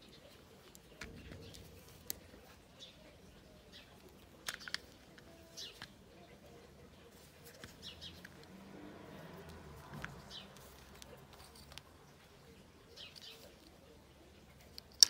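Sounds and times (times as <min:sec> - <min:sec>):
plastic switch housings handled: 0:04.0 - 0:06.0, 0:09.8 - 0:11.9, 0:14.6 - 0:15.0.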